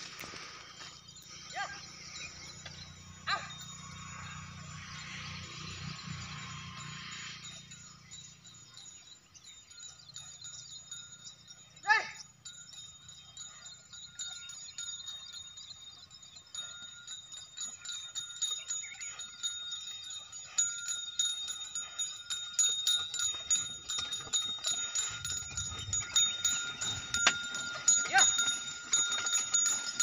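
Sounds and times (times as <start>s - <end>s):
bells jingling: 0.0s - 30.0s
clinking steps: 12.5s - 30.0s.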